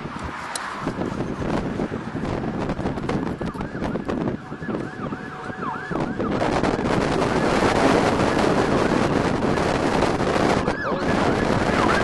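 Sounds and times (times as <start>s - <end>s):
wind gusting on microphone: 0.0s - 12.0s
siren yelping: 3.5s - 12.0s.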